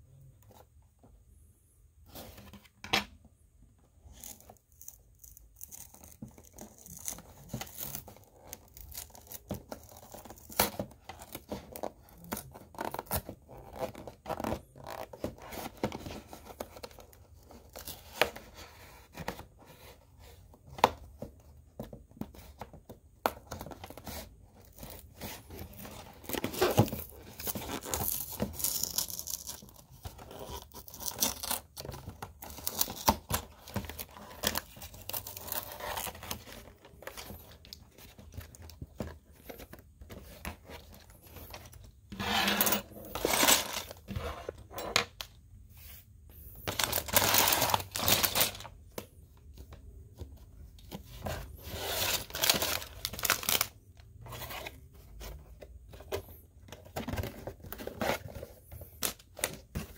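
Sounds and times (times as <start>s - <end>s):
packaging tearing and crinkling: 25.8s - 38.7s, 46.7s - 48.7s, 51.8s - 53.8s.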